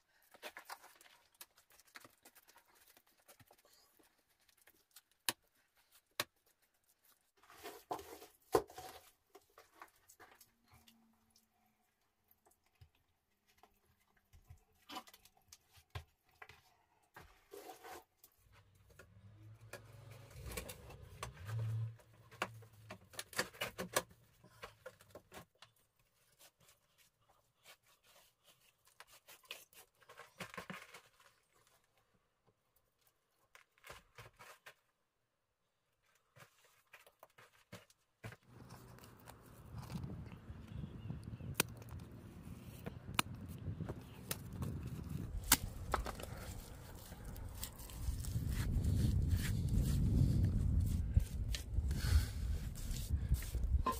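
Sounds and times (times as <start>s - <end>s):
earth and grit scraping: 38.4s - 53.9s
hands smoothing wet mud: 44.2s - 53.9s.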